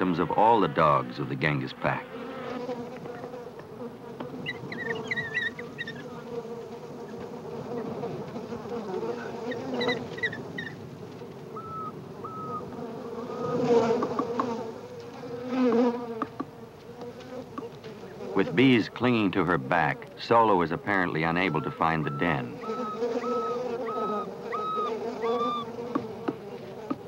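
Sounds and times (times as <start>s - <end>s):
bees buzzing: 0.0s - 27.0s
wild dogs crying: 4.4s - 6.3s, 11.5s - 13.8s, 21.4s - 26.3s.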